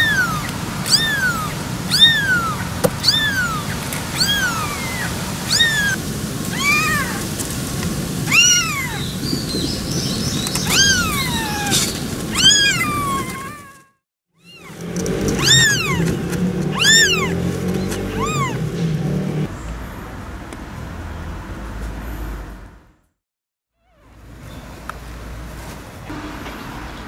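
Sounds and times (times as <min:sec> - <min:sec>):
kitten mewing: 0:00.0 - 0:07.3, 0:08.3 - 0:09.1, 0:10.6 - 0:18.7.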